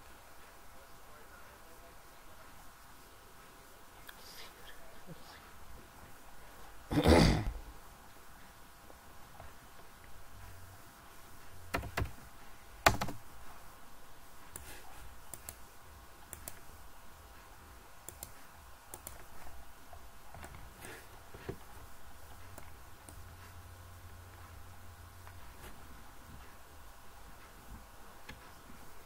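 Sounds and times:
faint low hum: 0.0s - 29.0s
keyboard taps: 12.8s - 13.2s
computer mouse clicks: 15.3s - 15.6s, 16.3s - 16.7s, 18.0s - 19.4s.

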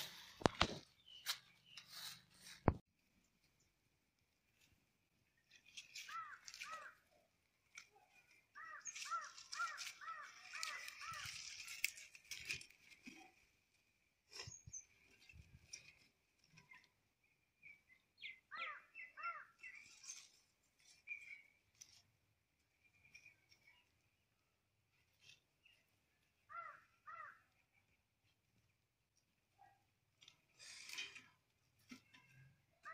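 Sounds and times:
dry sticks clicking and rustling: 5.3s - 16.9s
crow cawing: 6.1s - 7.0s, 8.6s - 11.5s, 26.5s - 27.4s.

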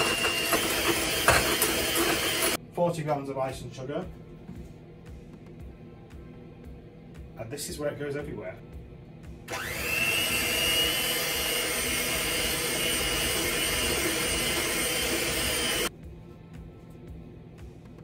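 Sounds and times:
electric mixer running: 0.0s - 2.6s, 9.5s - 15.9s.

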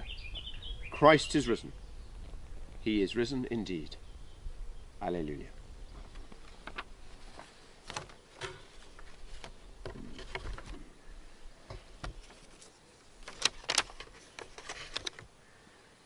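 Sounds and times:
paper rustling and crackling: 6.0s - 10.8s, 11.7s - 15.3s
paper tapping on wooden lectern: 6.1s - 10.8s, 11.7s - 12.5s.

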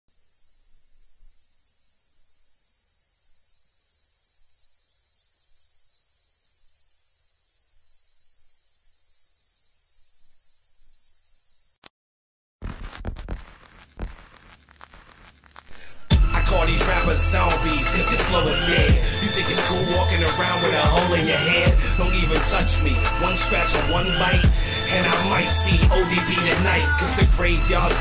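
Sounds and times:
crickets trilling: 0.1s - 11.8s
faint regular chirp: 0.1s - 11.8s
loud music beats: 15.8s - 28.0s.

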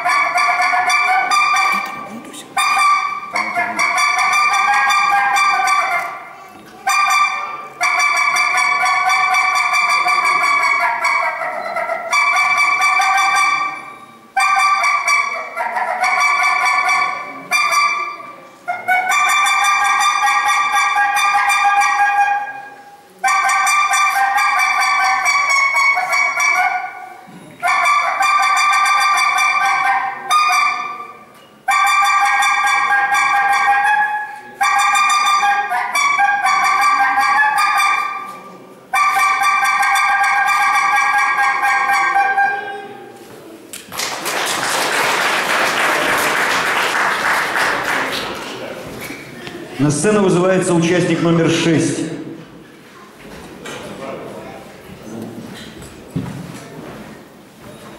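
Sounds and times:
wind instrument melody: 0.0s - 43.2s.

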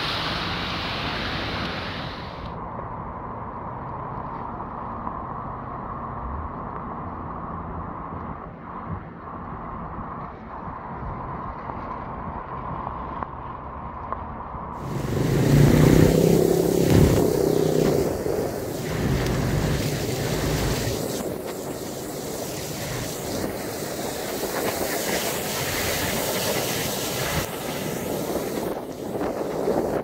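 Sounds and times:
floodwater rushing: 0.0s - 2.5s, 14.8s - 30.0s
heavy rain: 0.0s - 2.5s, 14.8s - 30.0s
vehicle engine running: 14.8s - 28.7s
tyres splashing through water: 14.8s - 29.2s.

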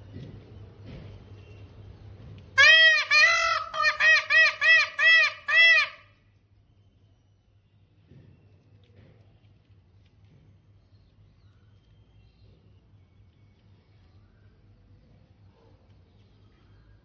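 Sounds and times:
peacock honking calls: 2.6s - 6.2s.

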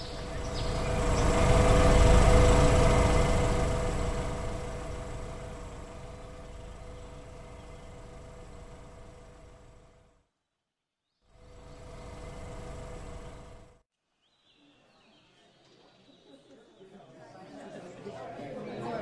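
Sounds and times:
vehicle engine humming: 0.0s - 10.0s, 11.4s - 13.8s.

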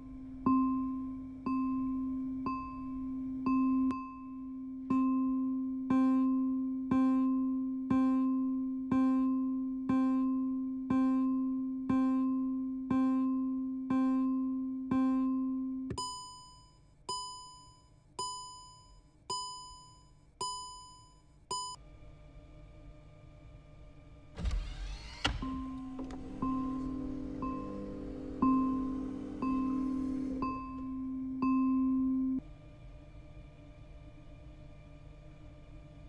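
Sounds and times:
low electronic warning chime: 26.0s - 32.4s.

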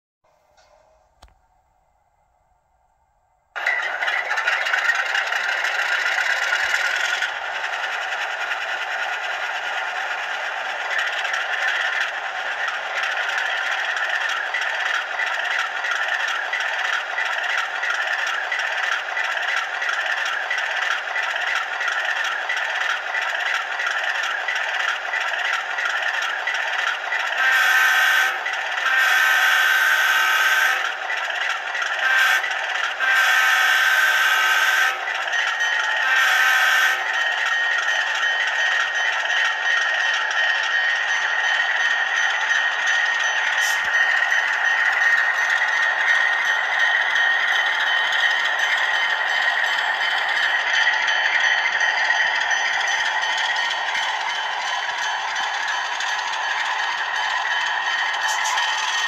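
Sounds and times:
model diesel engine sound: 2.8s - 59.0s
model locomotive horn: 27.2s - 31.1s, 31.9s - 37.4s.

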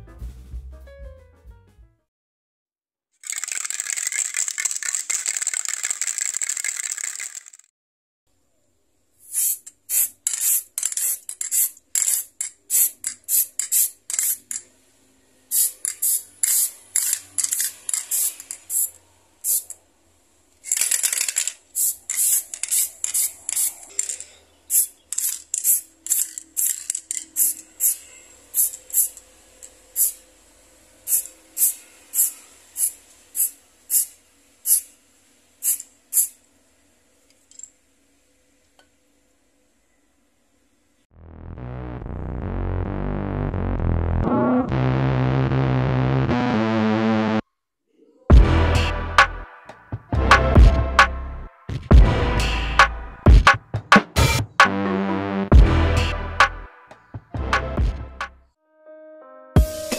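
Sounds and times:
spray can hissing: 3.2s - 7.6s, 9.2s - 14.6s, 15.5s - 19.8s, 20.6s - 29.2s, 29.9s - 30.2s, 31.0s - 34.9s, 35.6s - 36.4s.

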